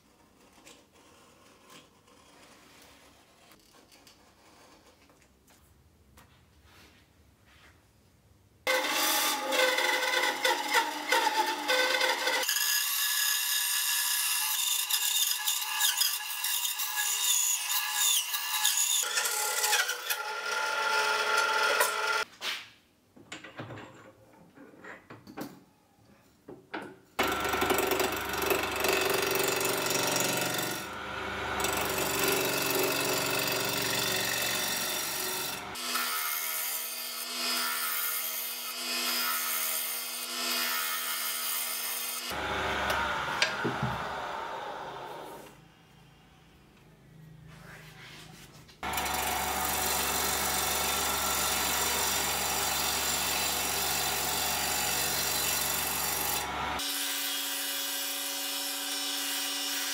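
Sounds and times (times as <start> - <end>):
gouge cutting spinning wood: 8.7 - 12.6, 27.2 - 35.8, 48.8 - 57.0
wood lathe running: 8.7 - 12.6, 27.2 - 35.8, 42.3 - 45.5, 48.8 - 56.9
band saw cutting wood: 8.7 - 22.3, 27.2 - 45.5, 48.8 - 59.9.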